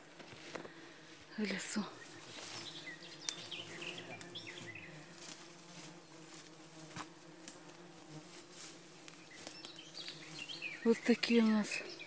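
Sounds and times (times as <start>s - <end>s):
buzz of flying insects: 0.0s - 12.0s
bird chirps: 1.9s - 5.0s.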